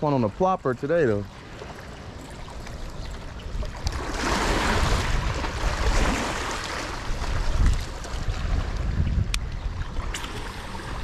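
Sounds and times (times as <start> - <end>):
water lapping against seawall: 0.0 - 11.0
wind buffeting microphone: 2.7 - 11.0.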